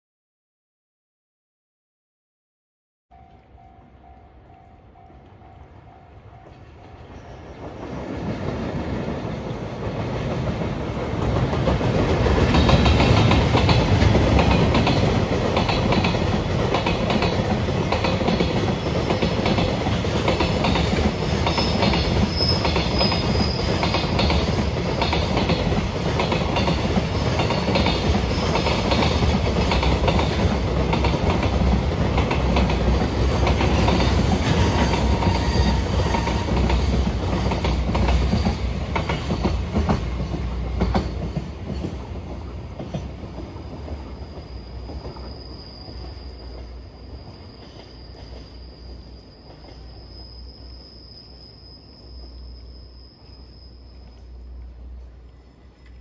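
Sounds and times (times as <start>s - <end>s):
train wagons rumbling past: 3.1s - 56.0s
faint wheel squeal: 43.4s - 54.7s.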